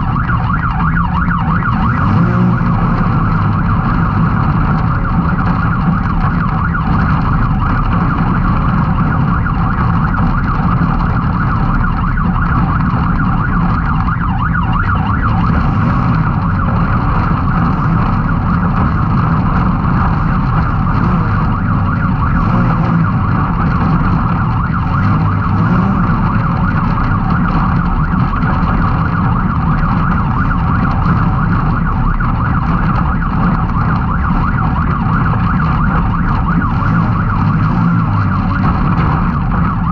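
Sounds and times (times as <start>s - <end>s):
engine running at high revs: 0.0s - 39.9s.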